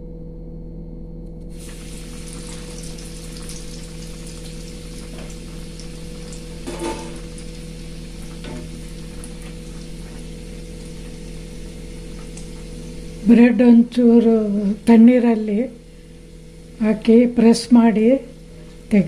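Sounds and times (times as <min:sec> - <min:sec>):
deep-frying sizzle with crackling: 0:01.5 - 0:19.0.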